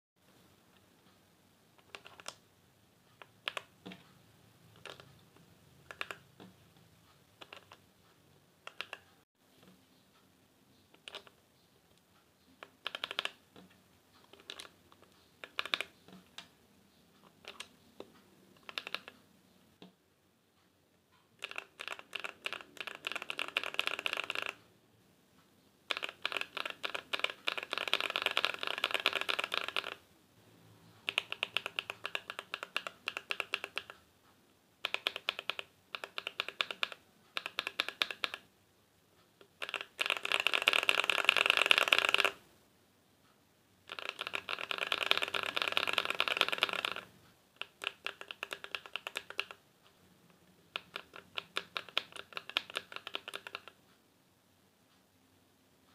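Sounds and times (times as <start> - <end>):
typing on mechanical keyboard: 1.8 - 2.4, 3.2 - 4.0, 4.7 - 6.5, 7.4 - 7.8, 8.6 - 9.2, 11.0 - 11.4, 12.6 - 16.5, 17.2 - 19.2, 21.4 - 24.7, 25.9 - 30.0, 31.0 - 34.0, 34.8 - 38.5, 39.4 - 42.5, 43.8 - 49.6, 50.4 - 53.8.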